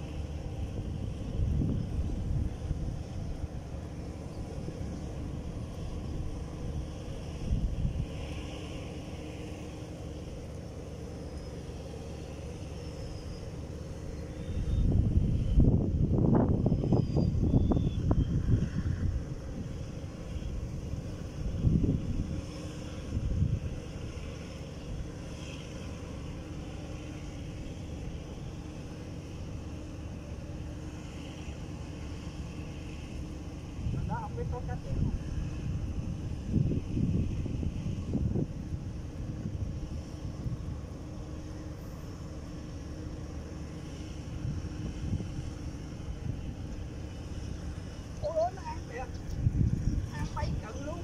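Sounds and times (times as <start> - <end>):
wind buffeting the microphone: 0.0 - 8.7, 14.0 - 24.4, 33.6 - 41.7, 44.2 - 51.0
faint hum: 0.0 - 51.0
steady low rumble: 0.0 - 51.0.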